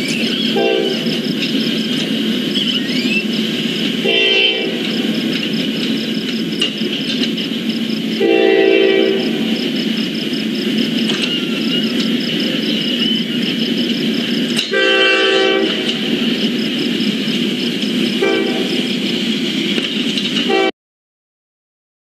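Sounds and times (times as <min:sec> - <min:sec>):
train rumbling: 0:00.0 - 0:20.7
locomotive horn blasts: 0:00.5 - 0:01.1, 0:04.0 - 0:05.0, 0:08.2 - 0:09.6, 0:14.6 - 0:16.0, 0:18.2 - 0:18.8, 0:20.5 - 0:20.7.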